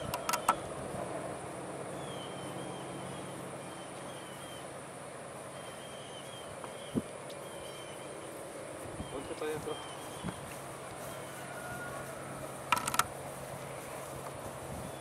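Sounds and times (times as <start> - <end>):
low background noise: 0.0 - 15.0
faint chirping: 1.8 - 12.6.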